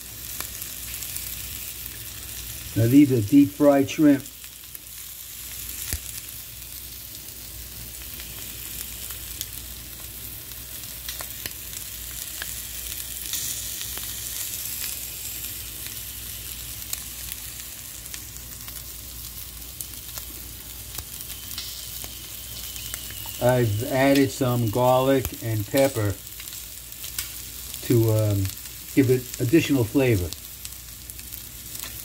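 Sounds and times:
shrimp sizzling in oil: 0.0 - 32.0
small pops and crackles: 4.7 - 6.4, 8.0 - 23.4, 25.2 - 28.9, 30.3 - 32.0.

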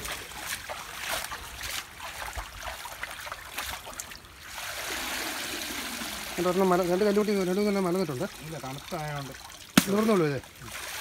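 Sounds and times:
stream of water running out: 0.0 - 11.0
water splashing and dripping: 0.0 - 11.0.

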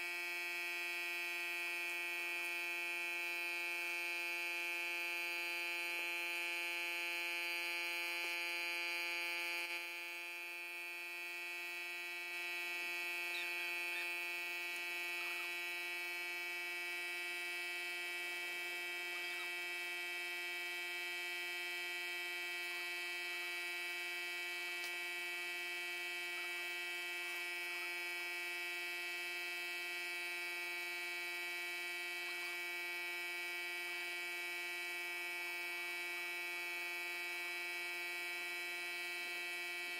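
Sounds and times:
air compressor humming: 0.0 - 39.9.

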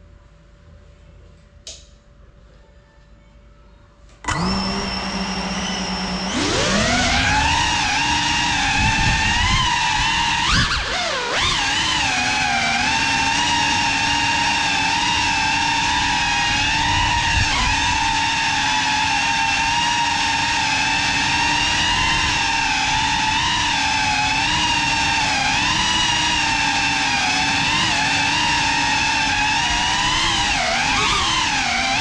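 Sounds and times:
drone propellers whining: 4.2 - 13.3, 14.8 - 19.7, 21.6 - 32.0.

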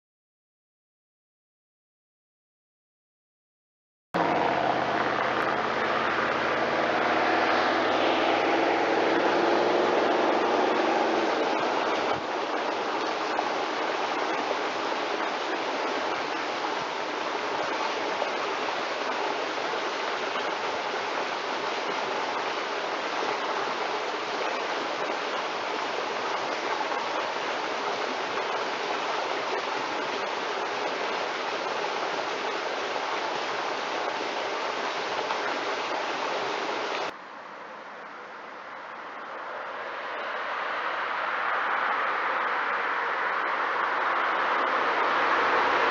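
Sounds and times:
car engine driving off: 4.2 - 15.6
steady rushing noise: 4.2 - 45.9.

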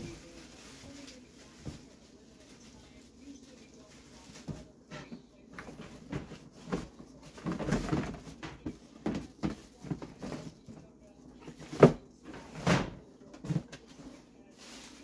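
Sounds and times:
plastic garbage bag rustling: 0.0 - 15.0
bin knocks and bumps: 11.6 - 13.7.

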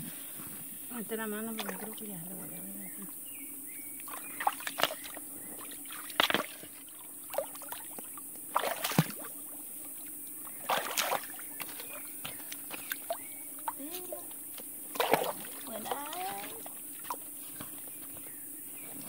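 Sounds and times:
hands splashing in water: 4.0 - 5.2, 5.9 - 9.3, 10.6 - 11.8, 14.9 - 17.2.

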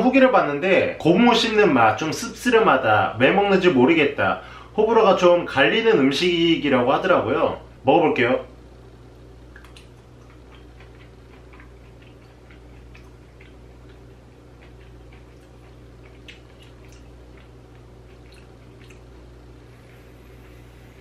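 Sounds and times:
steady low hum: 0.0 - 21.0
heavy breathing through nose: 4.4 - 4.8
wet chewing clicks and smacks: 9.5 - 19.2.

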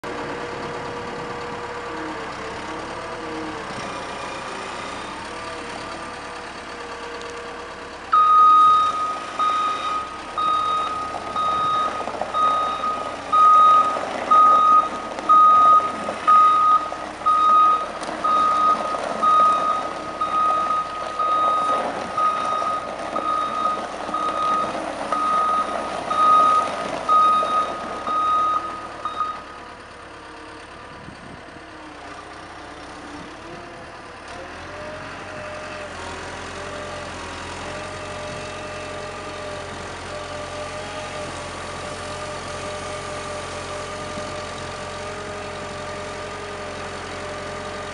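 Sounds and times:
diesel engine running: 0.0 - 47.9
reversing alarm beeping: 8.1 - 29.6.

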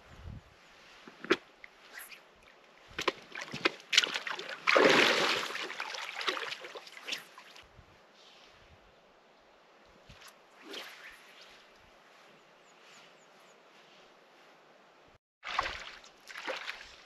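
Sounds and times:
water splashing around boots: 2.8 - 7.6, 15.4 - 17.0.

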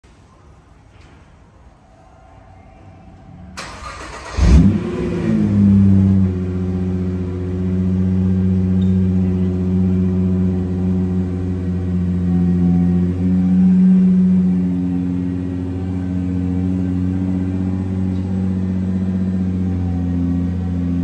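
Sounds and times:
car engine revving and idling: 3.5 - 21.0
engine starter whirring: 3.6 - 5.7.

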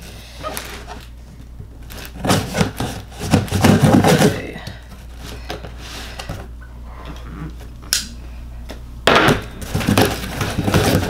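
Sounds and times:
knife cutting packing tape: 1.9 - 4.4
cardboard rustling and scraping: 1.9 - 6.0, 9.6 - 11.0.

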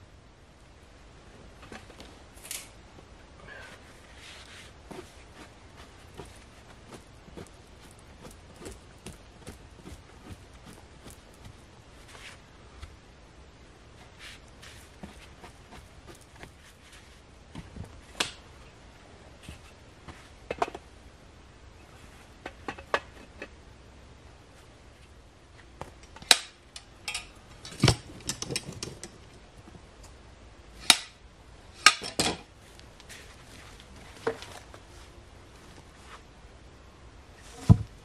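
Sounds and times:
hand tools and wooden posts knocking: 27.1 - 29.4.

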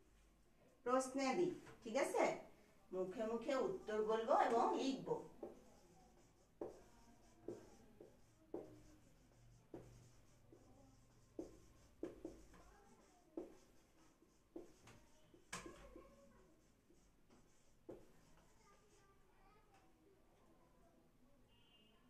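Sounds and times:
marker pen on whiteboard: 0.9 - 20.0.

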